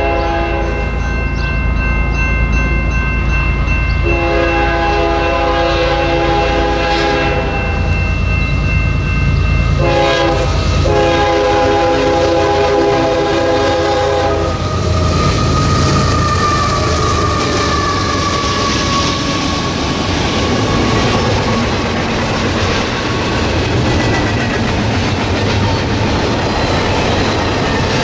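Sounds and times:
locomotive air horn blasts: 0.0 - 0.8, 4.0 - 7.8, 9.8 - 14.7
heavy diesel train rumble: 0.0 - 28.0.

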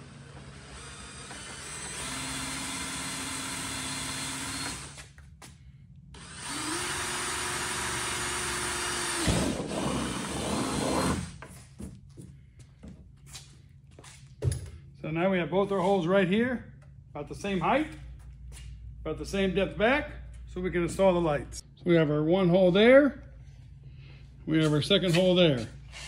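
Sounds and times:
power drill boring through plastic: 0.0 - 5.0, 6.2 - 11.4.

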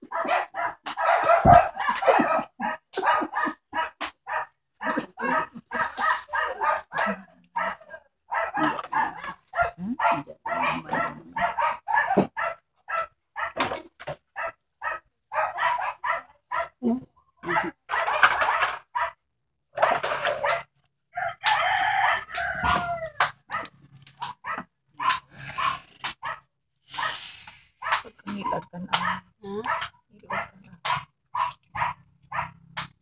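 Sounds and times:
small dog yapping: 0.1 - 13.6, 27.0 - 27.2, 27.8 - 32.6.

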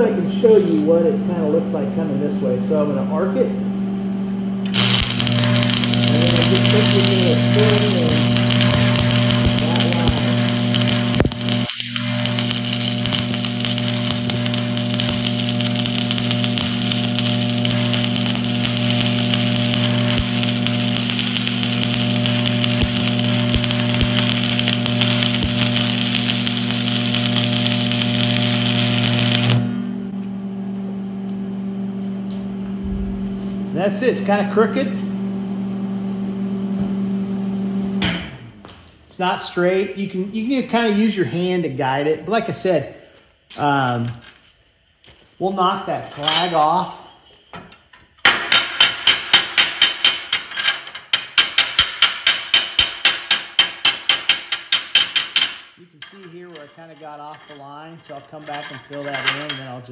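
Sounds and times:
steady hum: 0.0 - 39.3
welding arc crackling: 4.7 - 30.1
chipping hammer striking metal: 4.8 - 29.6.

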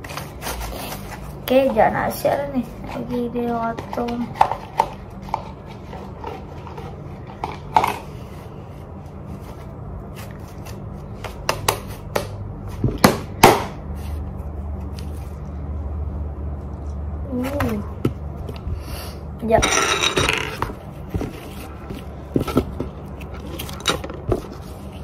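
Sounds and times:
slime stirred in plastic cup: 2.8 - 11.0.

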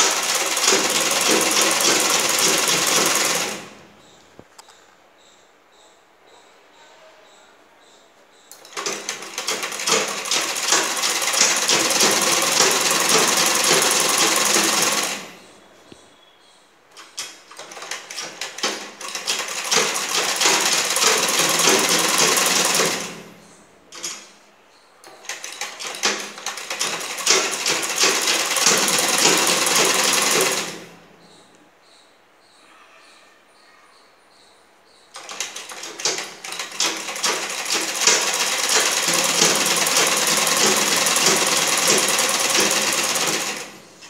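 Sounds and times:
sewing machine stitching: 0.0 - 3.8, 8.6 - 15.4, 17.6 - 23.3, 25.2 - 30.9, 35.2 - 43.8.

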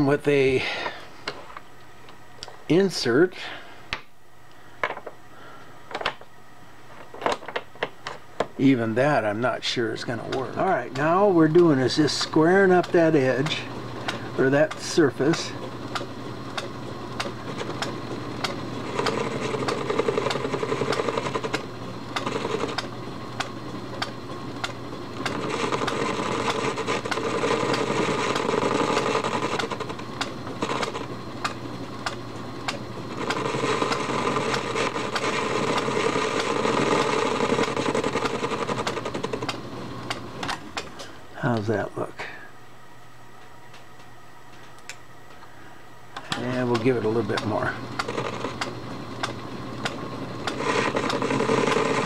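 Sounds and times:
motor and gears hum: 0.0 - 52.0
lathe cutting noise: 10.1 - 40.5, 46.6 - 52.0.

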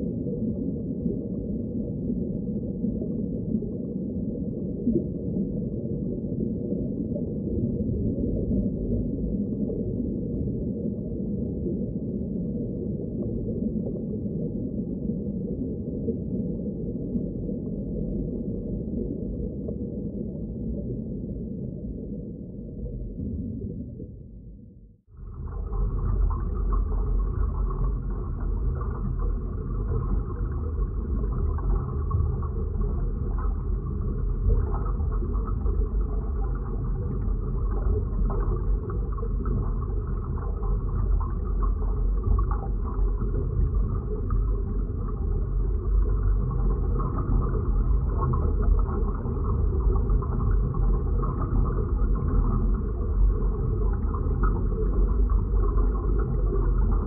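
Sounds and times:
dense low rumble: 16.4 - 57.0.

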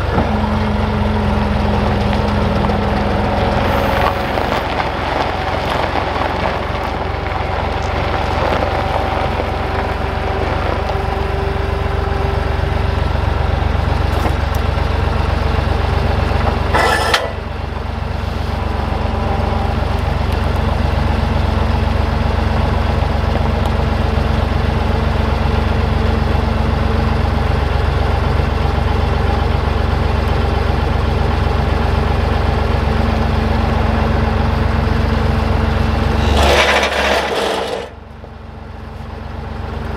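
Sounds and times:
skid steer engine idling: 0.0 - 39.9
boards clattering: 36.2 - 38.0.

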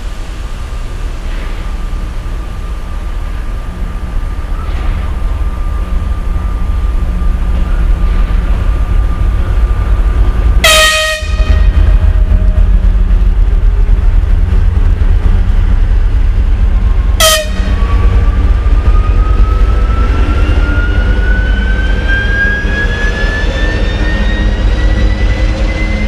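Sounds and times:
diesel locomotive engine rumble: 0.0 - 26.0
locomotive horn toot: 10.6 - 12.6, 17.2 - 18.0
thin rising whine: 11.5 - 26.0.

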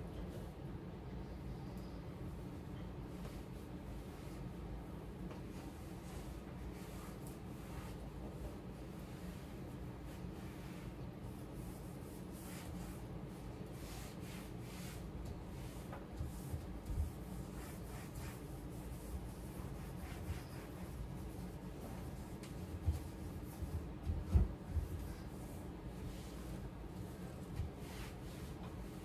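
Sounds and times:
steady low hum: 0.0 - 29.0
cloth rubbing on cabinet doors: 3.1 - 29.0.

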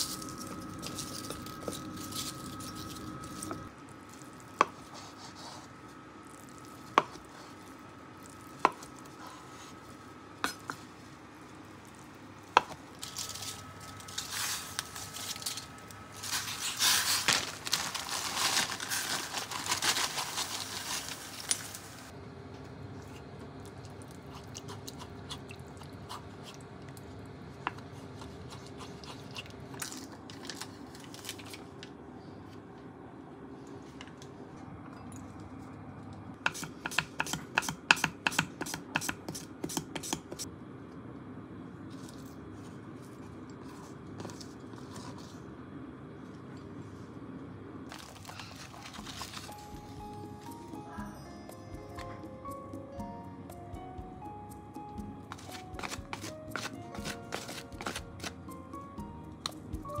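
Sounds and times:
cabbage leaves rustling and crunching: 13.0 - 22.1, 47.9 - 50.1.

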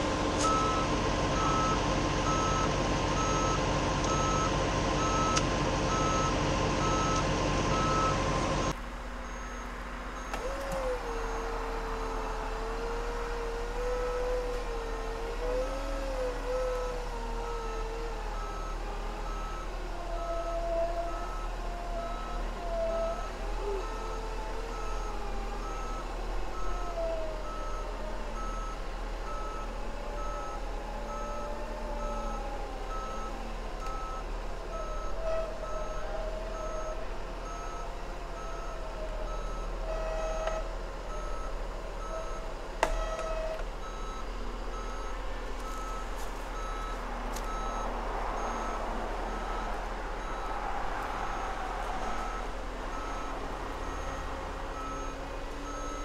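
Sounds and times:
diesel engine running: 0.0 - 56.0
backup alarm beeping: 9.2 - 10.5, 24.7 - 50.6, 51.2 - 56.0.

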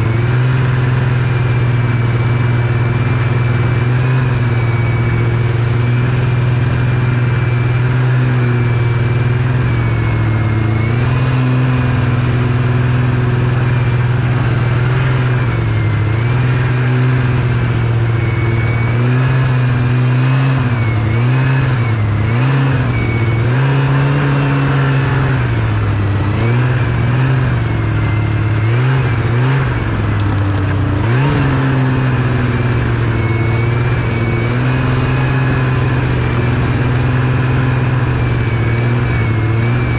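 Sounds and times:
snowmobile engine running: 0.0 - 39.9.

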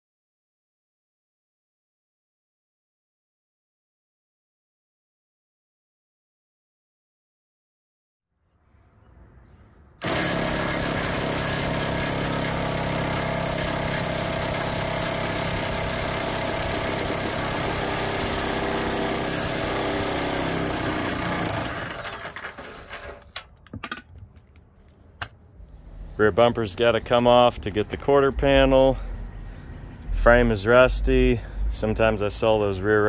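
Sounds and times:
impact wrench running: 10.0 - 23.4.

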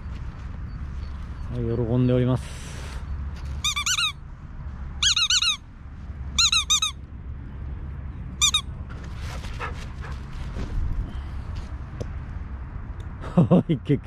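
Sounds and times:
rubber squeaky toy squeaks: 3.5 - 4.2, 5.0 - 5.6, 6.4 - 7.0, 8.4 - 8.7.

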